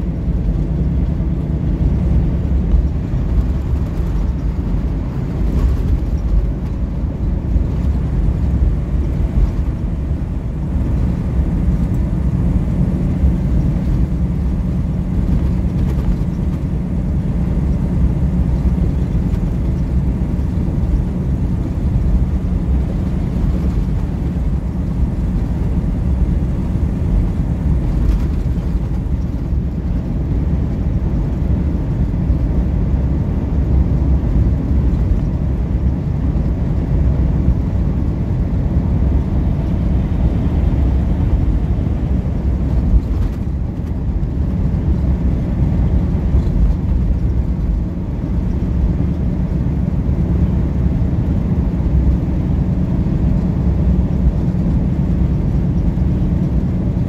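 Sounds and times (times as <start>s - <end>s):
truck engine and tyre rumble: 0.0s - 57.0s.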